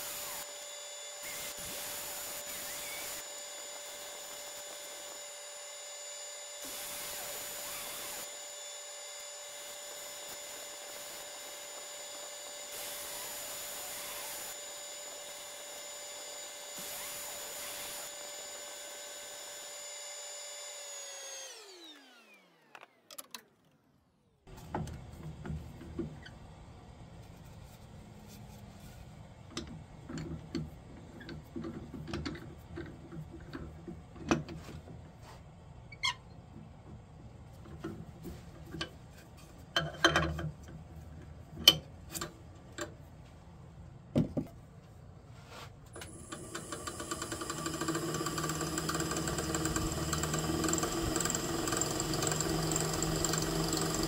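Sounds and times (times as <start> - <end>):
wood lathe motor whine: 0.0 - 23.0, 46.0 - 54.0.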